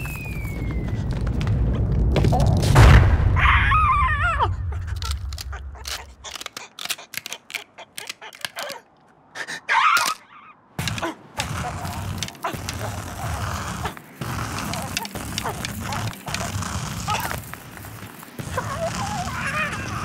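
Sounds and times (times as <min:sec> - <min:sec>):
cartoon rumble and boom: 0:00.6 - 0:06.2.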